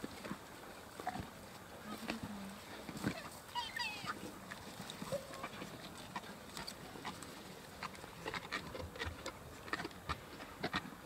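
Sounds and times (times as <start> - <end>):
hyenas crunching bone: 0.0 - 3.4, 4.2 - 11.0.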